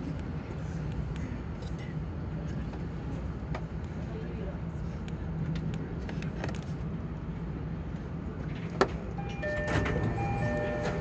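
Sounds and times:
train humming: 7.1 - 11.0
two-tone electronic chime: 9.2 - 11.0.

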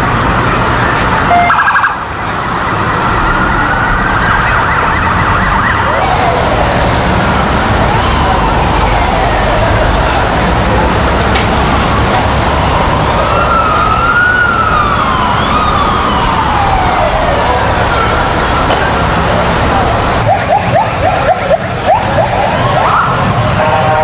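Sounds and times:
rumble of traffic: 0.0 - 24.0
sirens wailing: 0.0 - 24.0
siren fast yelp: 1.2 - 2.1, 20.2 - 23.3.

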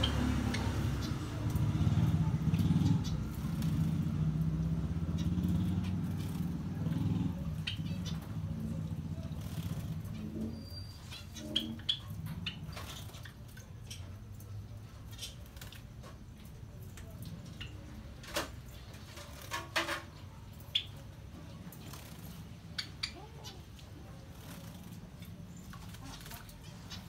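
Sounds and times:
finches chirping: 0.0 - 15.4.

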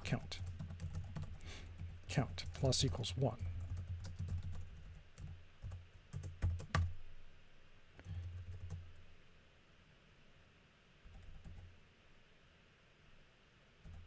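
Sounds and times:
computer keyboard typing: 0.0 - 7.0, 8.0 - 8.9, 11.1 - 11.7.

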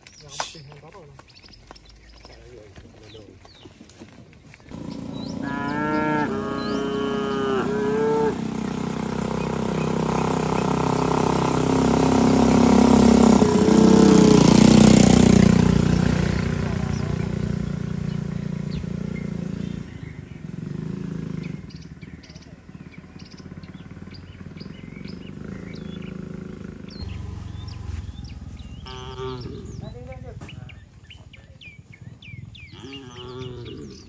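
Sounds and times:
motorcycle passing: 4.5 - 34.0
cow mooing: 4.7 - 8.5, 13.6 - 14.4, 27.0 - 30.0, 32.7 - 34.0.

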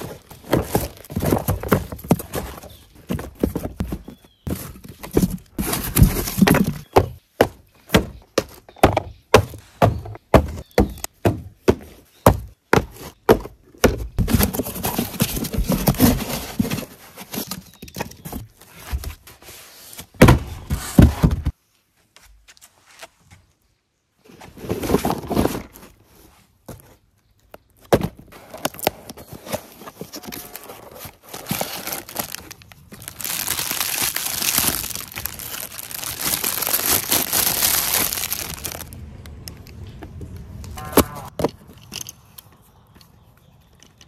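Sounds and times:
cardboard and styrofoam scraping: 0.0 - 7.1, 14.2 - 21.5, 28.3 - 38.9
boxes knocking on wooden planks: 0.1 - 16.9, 20.2 - 21.5.

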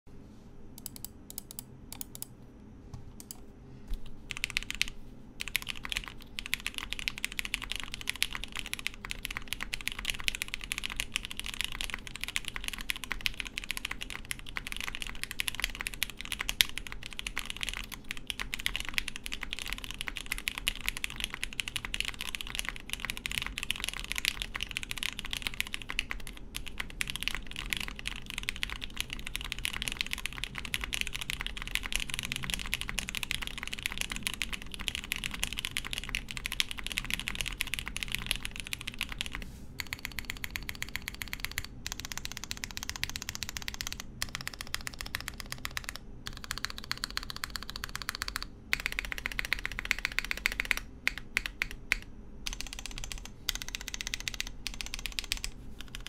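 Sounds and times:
faint fan hum: 0.1 - 56.0
mechanical keyboard typing: 0.8 - 2.3, 4.3 - 56.0.

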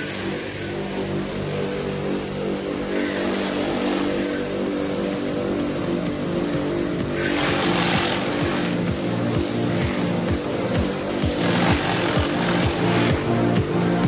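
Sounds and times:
pressure washer motor hum: 0.0 - 14.0
water jet hissing: 0.0 - 14.0.

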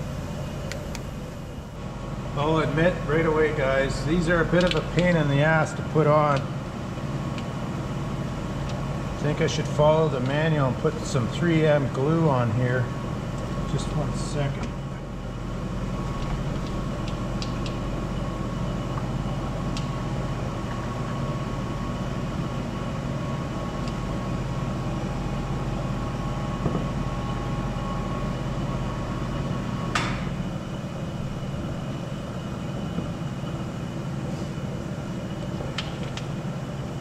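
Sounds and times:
steady mechanical hum: 0.0 - 37.0.

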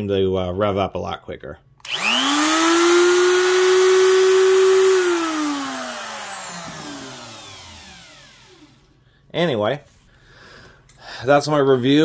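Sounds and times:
electric motor whine spinning down: 1.8 - 9.0.

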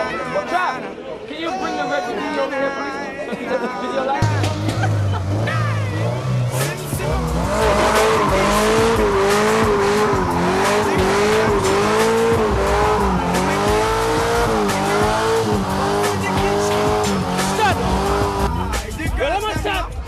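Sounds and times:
car engine at high revs: 4.2 - 18.8
tyres squealing: 5.2 - 18.7.

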